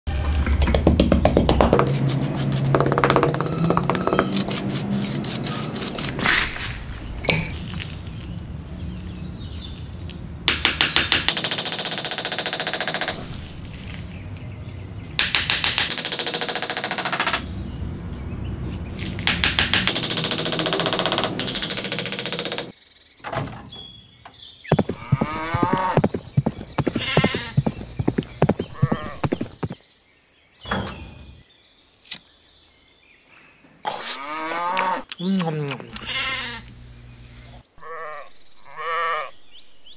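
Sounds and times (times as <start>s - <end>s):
rapid rasping strokes on wood: 1.8s - 3.1s, 3.8s - 6.2s.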